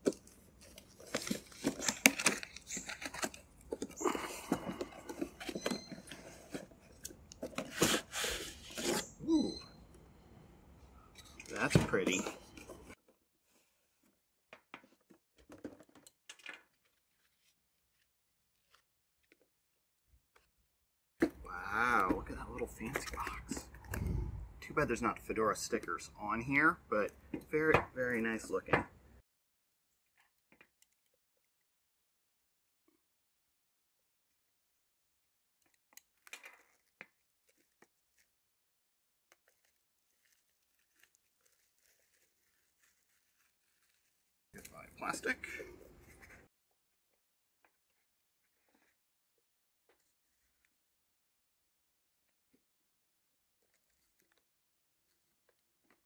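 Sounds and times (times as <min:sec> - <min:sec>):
packaging rustling and tearing: 0:00.0 - 0:09.1, 0:16.3 - 0:19.8, 0:35.0 - 0:46.4, 0:50.0 - 0:50.7, 0:53.6 - 0:56.0
plastic film crinkling: 0:00.1 - 0:04.1, 0:35.7 - 0:45.4
cardboard packaging scrapes and knocks: 0:07.5 - 0:09.1.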